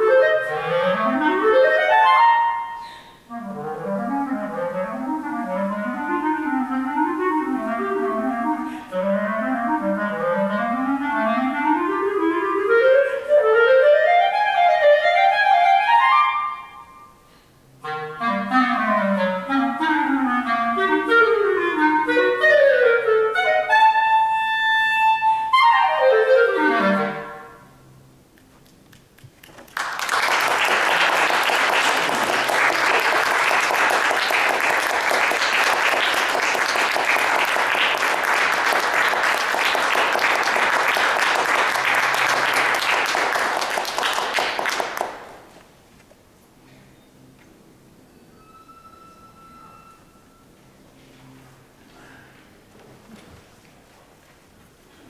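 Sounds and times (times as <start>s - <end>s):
clarinet playing runs: 0.0s - 28.0s
audience applauding: 28.8s - 45.4s.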